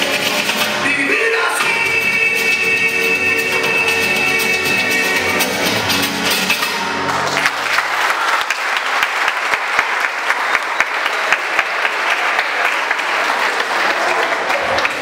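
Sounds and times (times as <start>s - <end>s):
pasodoble music: 0.0s - 7.8s
audience applauding: 7.0s - 15.0s.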